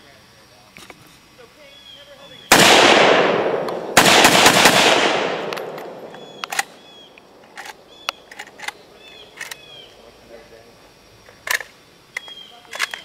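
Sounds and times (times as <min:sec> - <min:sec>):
single gunshot: 0:02.5 - 0:07.0
rifle firing rapid shots: 0:02.5 - 0:08.6.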